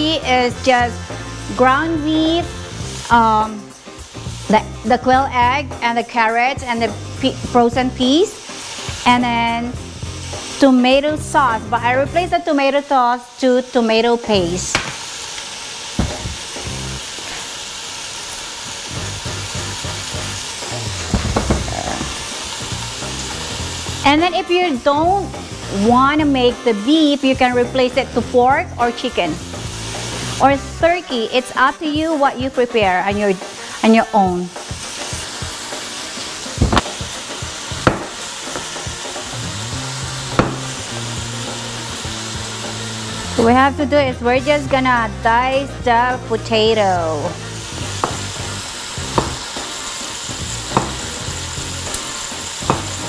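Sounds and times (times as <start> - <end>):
bacon sizzling in a pan: 0.0 - 53.0
sharp knocks: 16.0 - 16.4, 37.8 - 38.2, 40.4 - 40.7
sharp knock: 40.4 - 40.7.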